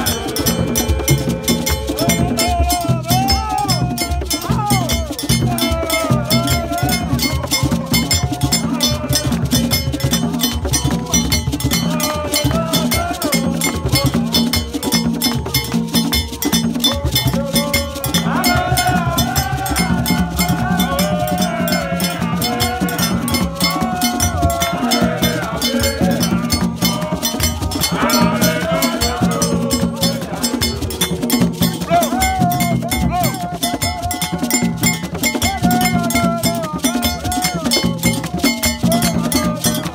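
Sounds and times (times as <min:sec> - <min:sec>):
crowd singing: 0:00.0 - 0:39.9
hand drums beating: 0:00.0 - 0:39.9
metal bell pattern: 0:00.0 - 0:39.9.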